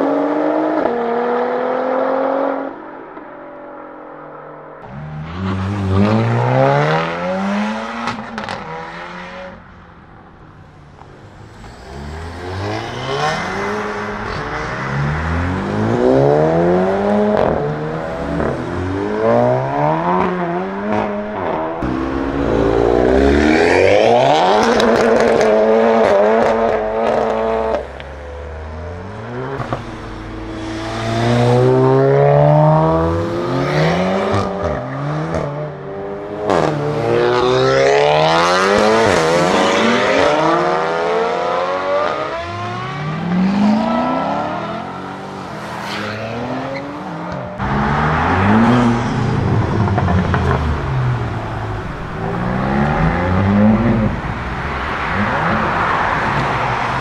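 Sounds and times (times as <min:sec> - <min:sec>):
cars accelerating hard past: 0:04.8 - 0:09.7, 0:10.9 - 0:57.0.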